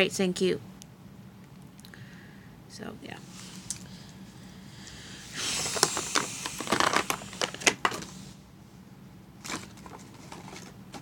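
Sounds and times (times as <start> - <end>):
toy packaging crinkling: 5.5 - 8.1.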